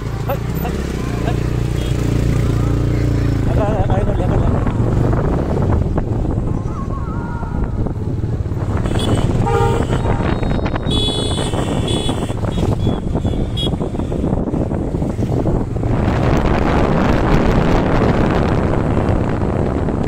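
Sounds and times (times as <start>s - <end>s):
motorcycle wind and road noise: 0.0s - 20.0s
vehicle horn toot: 8.8s - 14.1s.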